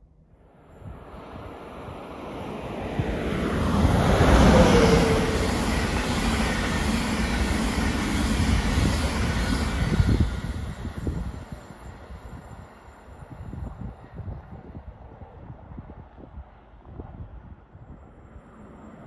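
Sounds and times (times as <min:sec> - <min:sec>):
passenger train rushing past: 0:00.5 - 0:15.4
rumble of train coaches: 0:00.6 - 0:17.2, 0:17.8 - 0:19.0.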